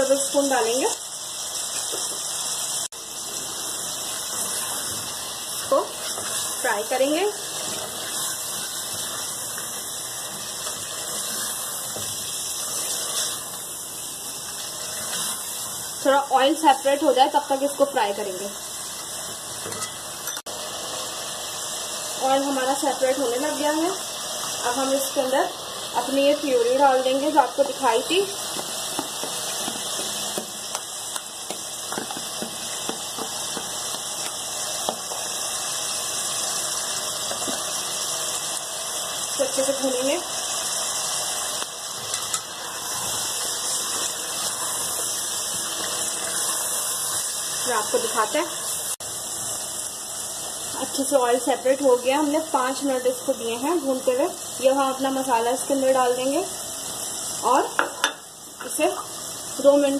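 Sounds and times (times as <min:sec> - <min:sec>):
food sizzling in oil: 0:00.0 - 0:59.9
spatula stirring: 0:03.4 - 0:16.0, 0:42.0 - 0:47.8.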